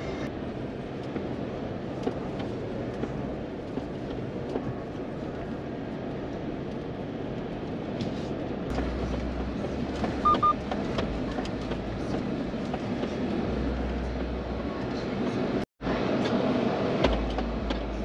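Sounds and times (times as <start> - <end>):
road and tyre rumble: 0.0 - 18.0
short high beeps: 10.2 - 10.6.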